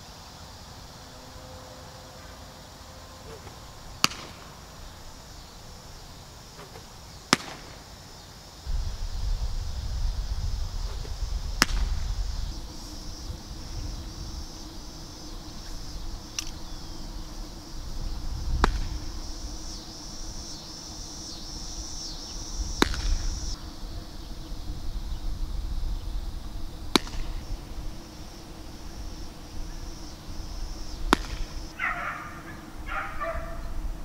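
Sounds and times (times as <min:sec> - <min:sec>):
insects buzzing: 0:00.0 - 0:34.0
low wind rumble: 0:08.6 - 0:34.0
faint click: 0:16.3 - 0:16.6.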